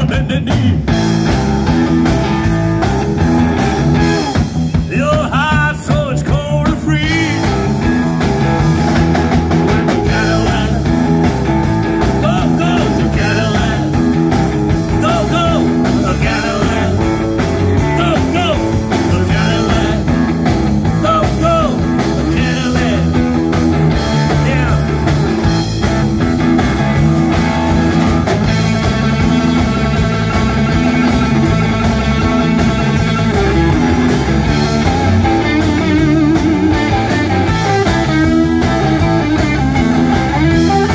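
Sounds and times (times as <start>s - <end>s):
man singing: 0.0s - 1.0s, 4.8s - 7.6s, 9.9s - 11.1s, 12.0s - 14.0s, 14.9s - 20.2s, 21.0s - 23.3s, 24.1s - 25.0s
drum kit: 0.0s - 40.9s
electric bass: 0.0s - 40.9s
electric guitar: 0.0s - 40.9s.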